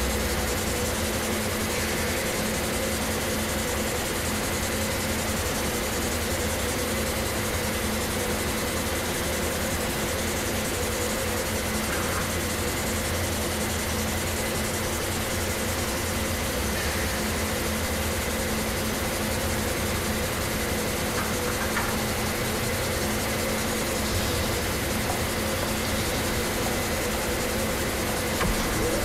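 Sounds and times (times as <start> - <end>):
textile machinery hum and hiss: 0.0 - 29.0
thin high whine: 15.0 - 29.0.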